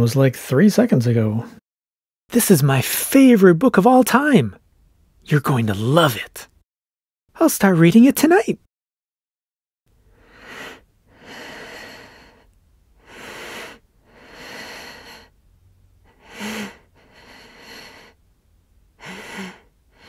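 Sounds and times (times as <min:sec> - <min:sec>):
person breathing heavily: 0:10.1 - 0:15.4, 0:16.0 - 0:18.2, 0:19.0 - 0:20.0.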